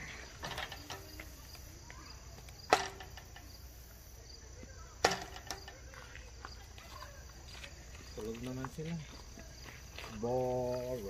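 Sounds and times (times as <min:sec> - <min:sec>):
insects chirping: 0:00.0 - 0:11.0.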